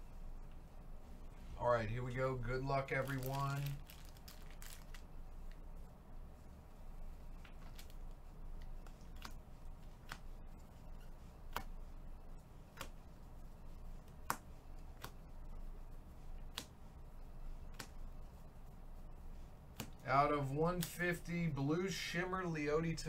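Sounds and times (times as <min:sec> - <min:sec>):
faint low hum: 0:00.0 - 0:23.0
trading cards snapping: 0:11.5 - 0:11.8, 0:12.7 - 0:13.0, 0:14.1 - 0:15.2, 0:16.4 - 0:16.8, 0:17.7 - 0:18.0, 0:19.7 - 0:20.0.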